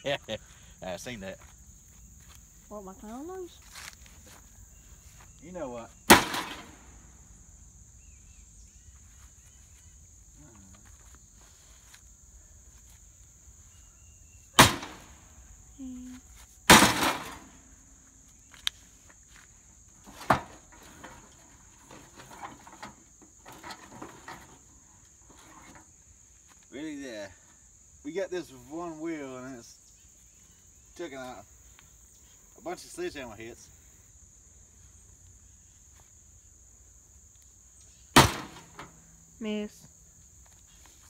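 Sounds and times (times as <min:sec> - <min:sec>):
high insect buzz: 0:00.0 - 0:41.0
sledgehammer hitting metal grill: 0:06.1 - 0:06.8, 0:14.6 - 0:15.1, 0:16.7 - 0:17.5, 0:38.2 - 0:38.9.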